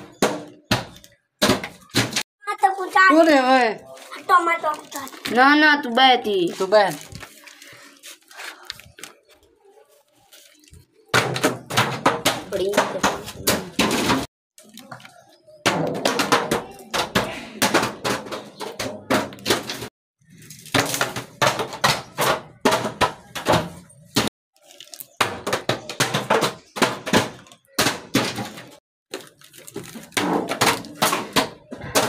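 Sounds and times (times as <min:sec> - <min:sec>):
bottles tumbling down stone stairs: 0:10.7 - 0:32.0.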